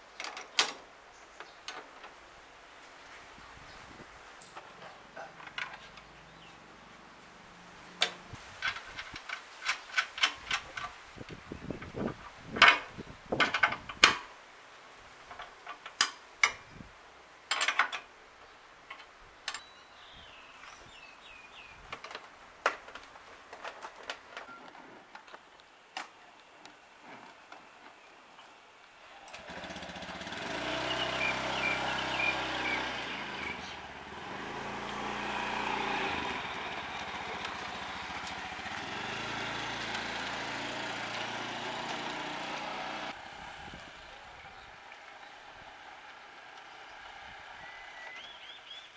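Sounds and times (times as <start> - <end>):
scooter engine running: 29.3 - 44.4.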